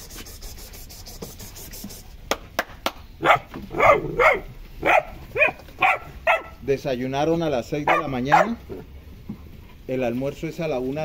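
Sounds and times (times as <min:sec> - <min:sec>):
puppies barking and yelping: 0:03.2 - 0:06.7, 0:07.8 - 0:09.0.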